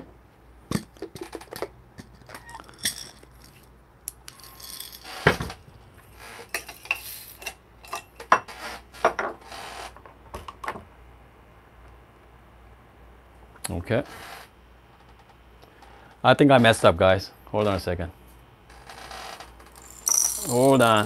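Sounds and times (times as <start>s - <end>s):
coffee gear clinking and rattling: 4.3s - 5.4s, 19.7s - 21.0s.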